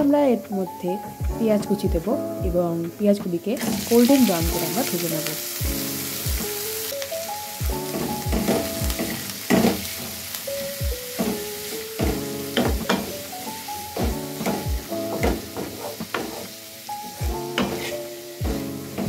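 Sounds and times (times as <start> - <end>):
onions sizzling in oil: 0.0 - 19.0
background music with thumping beat: 1.0 - 4.9, 5.6 - 6.8, 7.6 - 19.0
spatula stirring in wok: 7.8 - 19.0.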